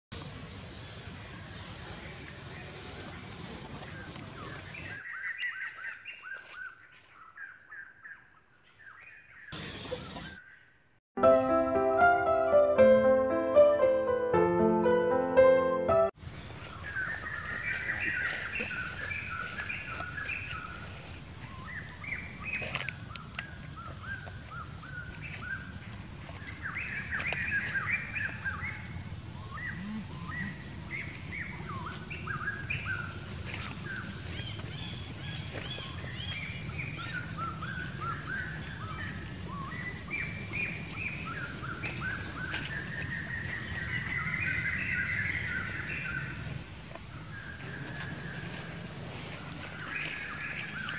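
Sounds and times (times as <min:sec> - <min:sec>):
wild birds chirping: 0:00.1 - 0:11.0, 0:16.1 - 0:50.9
low outdoor background hum: 0:16.2 - 0:50.9.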